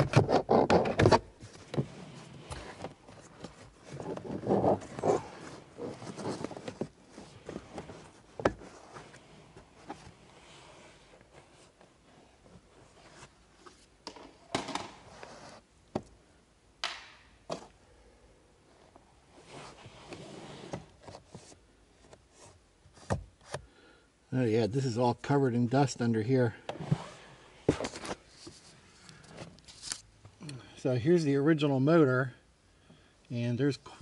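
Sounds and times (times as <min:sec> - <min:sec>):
plastic rubbing and scraping: 0:00.0 - 0:11.8.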